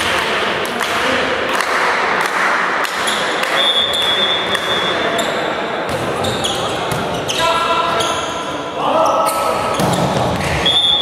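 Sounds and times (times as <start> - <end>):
murmur of voices: 0.0 - 11.0
referee's whistle blast: 3.6 - 5.0, 10.6 - 11.0.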